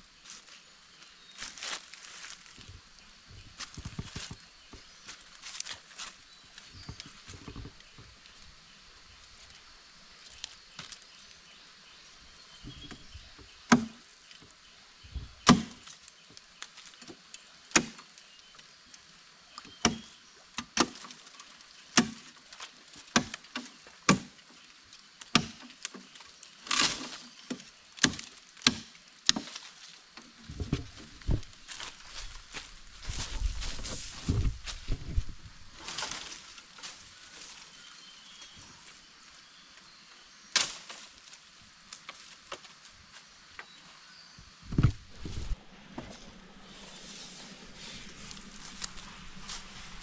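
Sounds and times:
blade chopping into wood: 13.7s - 14.0s, 15.5s - 15.8s, 22.0s - 22.2s, 24.1s - 24.3s, 25.4s - 25.6s, 28.0s - 29.4s
rasping wood crack: 26.6s - 29.7s, 44.8s - 50.0s.

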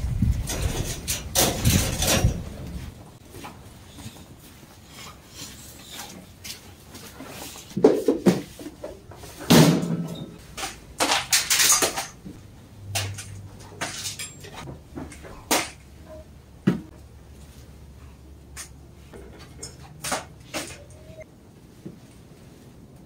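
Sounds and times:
kibble rattling in metal bowls: 10.4s - 14.7s.

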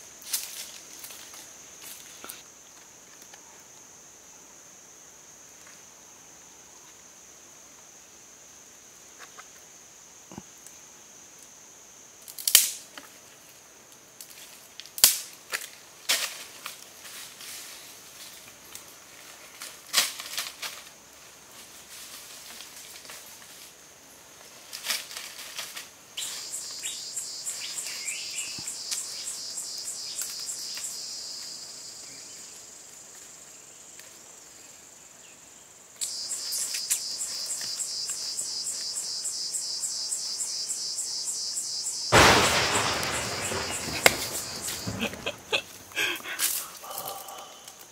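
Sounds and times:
cicadas droning: 0.0s - 47.9s
sharp snaps: 12.3s - 12.8s, 14.8s - 15.7s, 42.1s - 45.2s.

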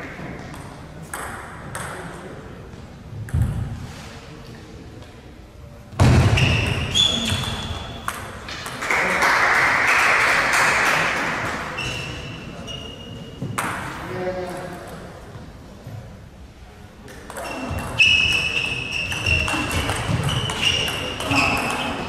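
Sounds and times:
table tennis balls bouncing: 0.0s - 2.4s, 3.2s - 3.9s, 6.0s - 9.7s, 13.4s - 15.4s, 17.1s - 22.0s.

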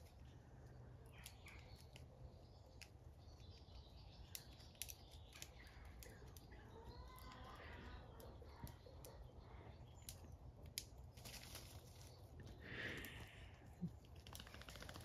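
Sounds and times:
birds chirping: 0.0s - 15.0s
clicks and rustles in leaves: 10.0s - 15.0s.

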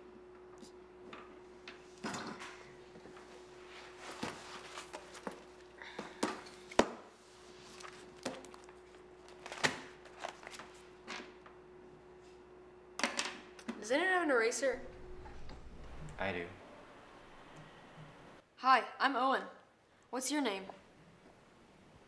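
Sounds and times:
ring binder opening: 7.7s - 10.8s
low hum: 14.6s - 18.4s.

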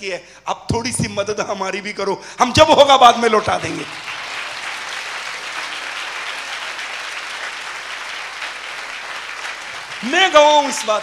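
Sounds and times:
congregation clapping: 3.4s - 11.0s.

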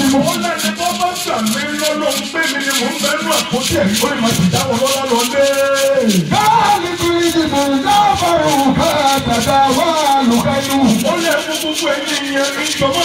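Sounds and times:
man singing: 0.0s - 13.0s
shaker rhythm: 0.0s - 13.0s.

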